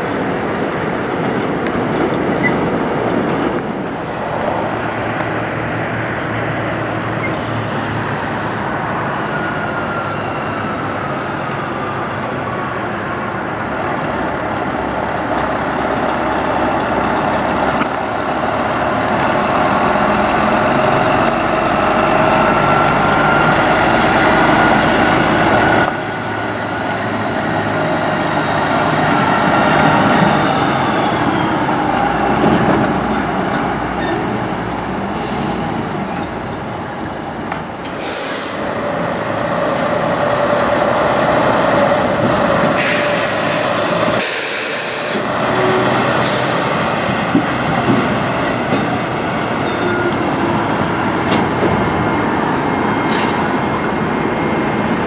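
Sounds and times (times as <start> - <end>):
diesel truck engines running: 0.0 - 55.0
engine whine: 0.0 - 55.0.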